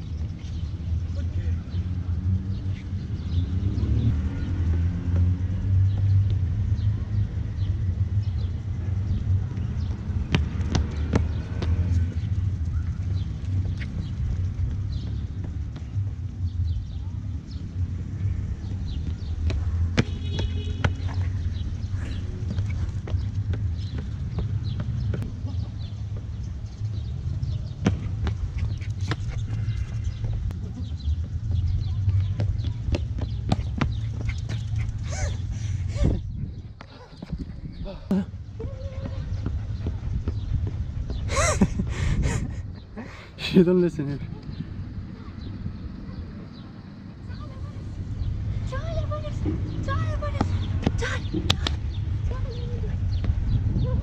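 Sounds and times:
running footsteps on stone: 8.6 - 16.9, 18.4 - 42.4.

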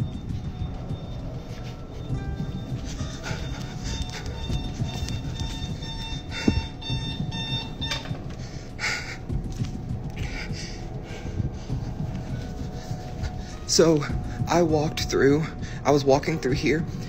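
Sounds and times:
electronic alarm beeping: 0.0 - 8.5.

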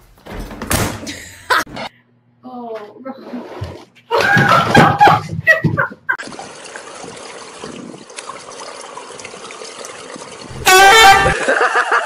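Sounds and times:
faint water sounds: 6.2 - 11.4.

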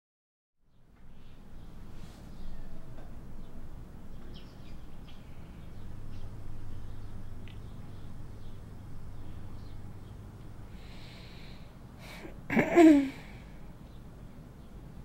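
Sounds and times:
steady low hum: 0.6 - 15.0.

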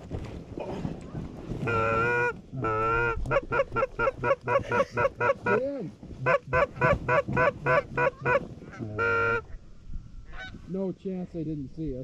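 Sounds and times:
goose honking and clucking: 1.6 - 5.6, 6.2 - 9.6, 10.3 - 10.6
goose sliding moan: 1.6 - 5.6.

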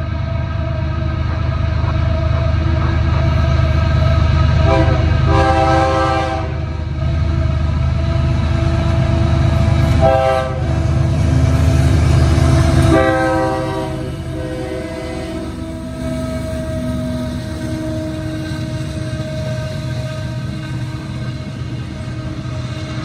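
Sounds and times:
diesel locomotive engines rumbling: 0.0 - 23.0
train horn blasts: 4.6 - 6.8, 8.6 - 11.0, 12.3 - 20.4.

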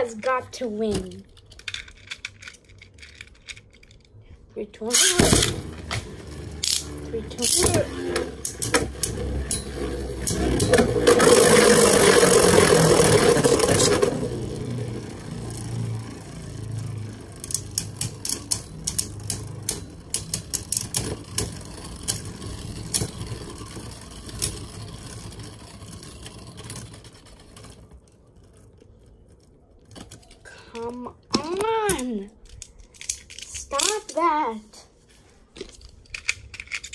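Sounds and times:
spinning tops whirring and grinding: 4.9 - 29.1
spinning tops clacking: 6.5 - 27.9.

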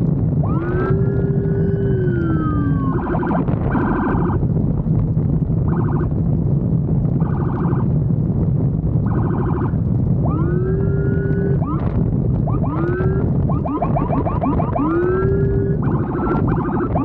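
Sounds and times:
motorcycle engine rumble: 0.0 - 17.0
wind: 0.0 - 17.0
electronic siren wailing: 0.3 - 4.4, 5.6 - 6.2, 7.2 - 8.0, 9.0 - 17.0.

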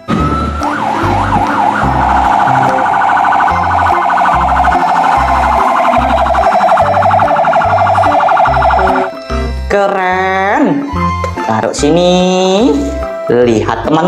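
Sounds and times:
electronic fire truck siren: 0.0 - 9.2
low pulsing beat: 0.1 - 9.2.

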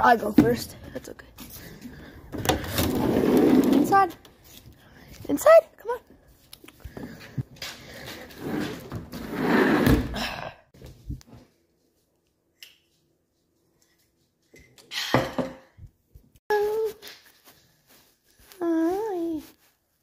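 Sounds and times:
sliding glass door rolling: 2.8 - 3.9.

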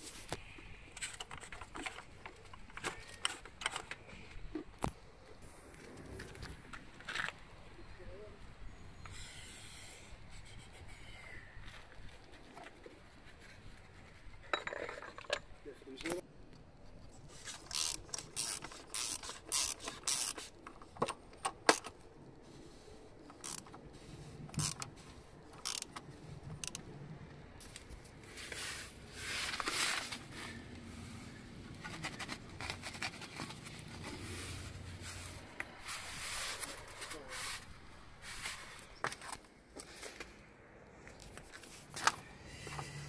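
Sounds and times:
ratchet wrench clicking: 17.6 - 20.5, 23.4 - 23.7, 24.6 - 24.9, 25.6 - 26.0
scraping and rubbing under car: 27.6 - 40.4.

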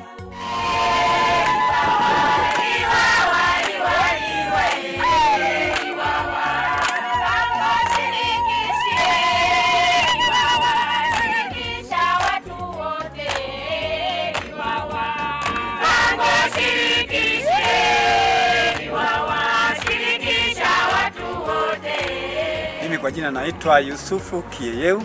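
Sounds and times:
group singing in chorus: 0.0 - 23.0
hand-clapping: 2.5 - 8.2, 10.0 - 11.5, 12.1 - 12.5, 13.2 - 13.5, 14.3 - 16.8, 18.7 - 19.0, 19.7 - 20.2, 21.9 - 22.2.

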